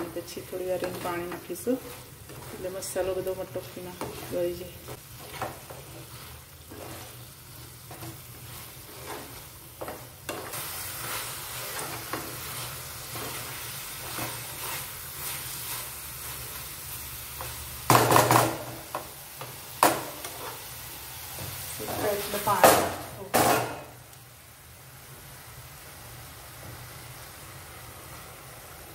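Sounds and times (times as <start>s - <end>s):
food sizzling in a pan: 0.0s - 28.9s
spatula scraping pan: 0.4s - 16.6s.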